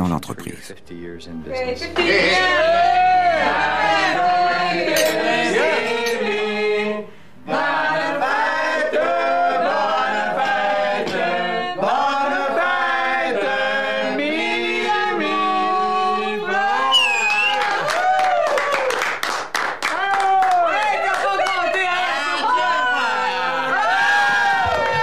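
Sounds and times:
group singing a birthday song: 1.6s - 17.5s.

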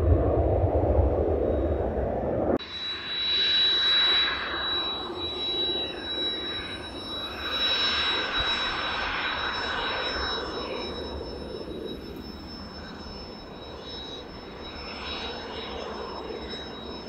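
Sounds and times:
jet engine whine and roar: 0.0s - 17.0s.

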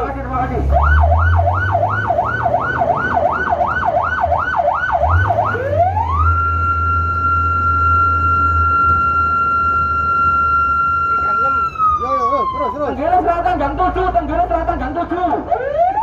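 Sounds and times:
emergency vehicle siren: 0.0s - 16.0s
low engine hum: 0.0s - 16.0s.

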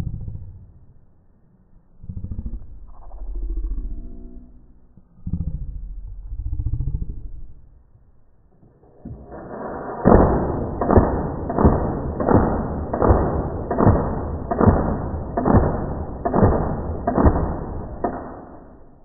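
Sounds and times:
heavy booming hits: 9.5s - 19.0s.

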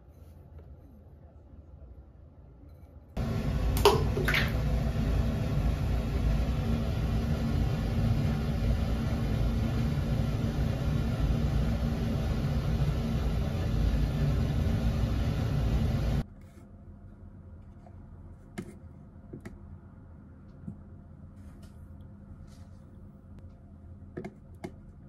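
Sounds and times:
sharp water splashes: 3.2s - 5.0s
water churning in bathtub: 3.2s - 16.2s.

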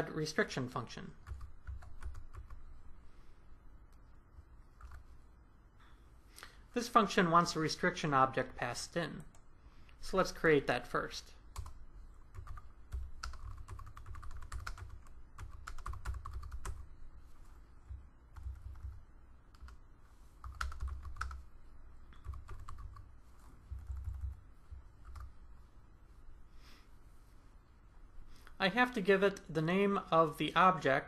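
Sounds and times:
typing on computer keyboard: 1.2s - 2.6s, 11.6s - 16.9s, 18.4s - 19.8s, 20.4s - 21.4s, 22.2s - 23.1s, 23.7s - 24.4s.

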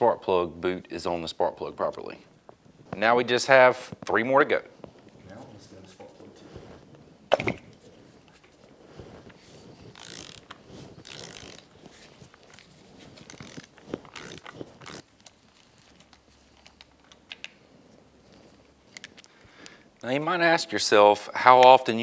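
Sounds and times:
ratchet clicking: 10.0s - 11.6s.

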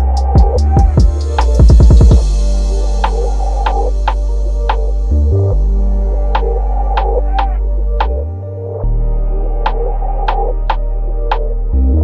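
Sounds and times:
sharp percussion hits: 0.0s - 5.3s
low synth bass: 0.0s - 12.0s.

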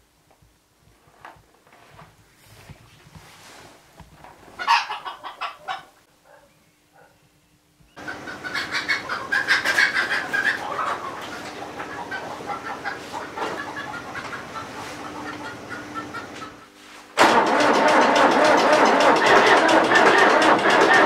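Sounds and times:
chickens clucking: 4.4s - 6.0s, 8.0s - 21.0s.

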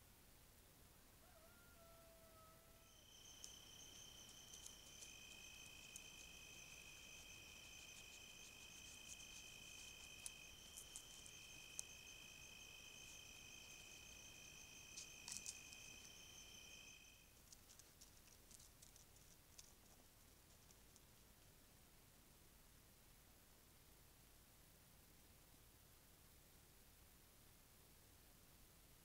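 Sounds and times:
night insects trilling: 2.8s - 17.9s.

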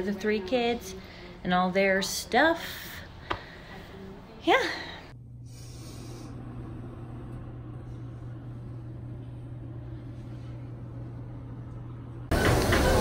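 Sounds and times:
steady low hum: 2.2s - 12.4s.

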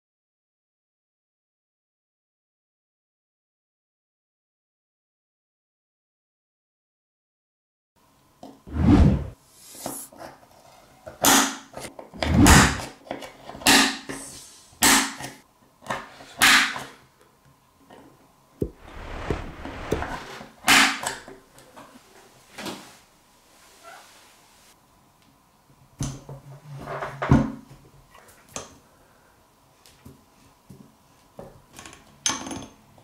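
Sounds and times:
heavy thuds: 18.6s - 20.4s.

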